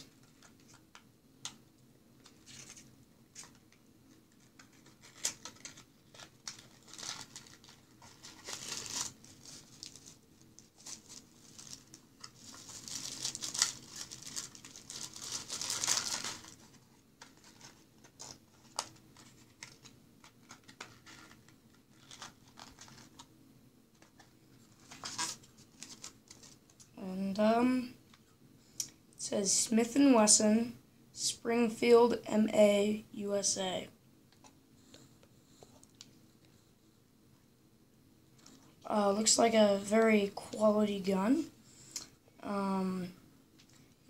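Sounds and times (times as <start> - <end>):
plastic wrapping crinkling: 4.3 - 23.3, 24.0 - 26.9.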